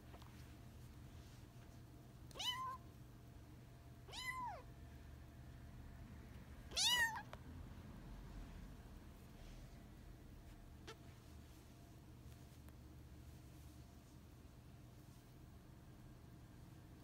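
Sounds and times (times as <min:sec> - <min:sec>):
kitten meowing: 0:02.3 - 0:02.8, 0:04.1 - 0:04.6, 0:06.7 - 0:07.3.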